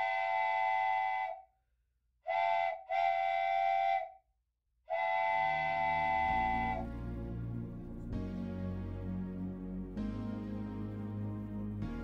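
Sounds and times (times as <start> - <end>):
steam locomotive whistle blasts: 0.0 - 1.4, 2.3 - 4.2, 4.9 - 7.2.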